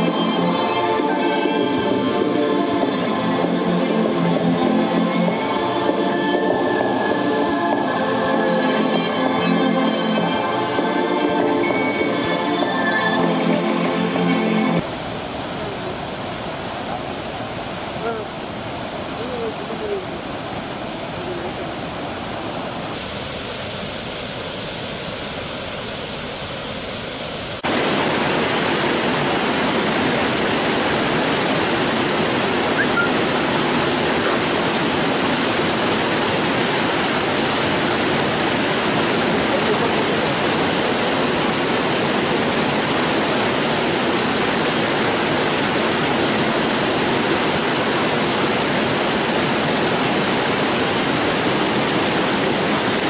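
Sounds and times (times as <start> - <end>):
water rushing over rocks: 0.0 - 13.3, 14.8 - 53.0.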